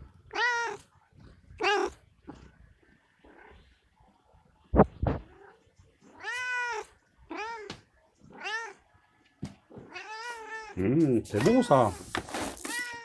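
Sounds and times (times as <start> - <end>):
cat meowing: 0.2 - 0.9, 1.6 - 2.0, 5.2 - 8.8, 9.8 - 10.8, 12.6 - 13.0.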